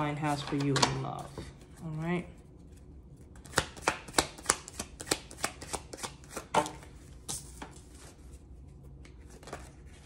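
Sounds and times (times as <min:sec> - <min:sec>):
cards being shuffled: 0:03.2 - 0:08.2, 0:08.9 - 0:10.0.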